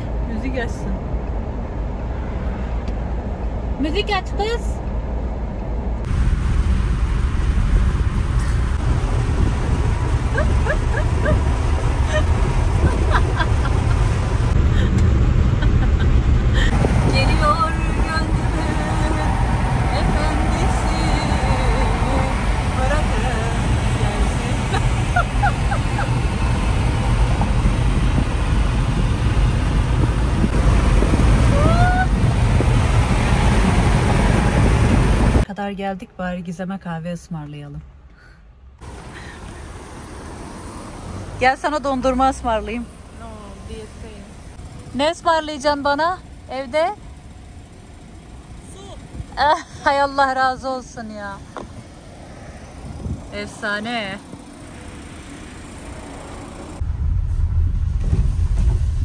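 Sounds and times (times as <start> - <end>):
car road and engine rumble: 0.0 - 59.0
high-pitched yelps: 10.3 - 11.5.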